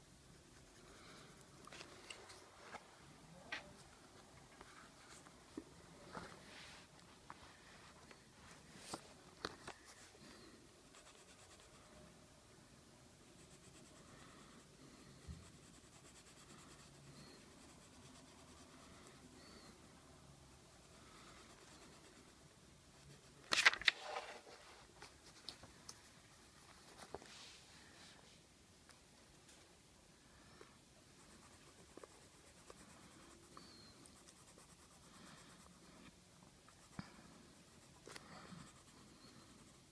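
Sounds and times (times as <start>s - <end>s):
pencil scratching on paper: 9.8s - 12.0s, 13.2s - 19.9s, 20.7s - 24.6s, 31.0s - 39.9s.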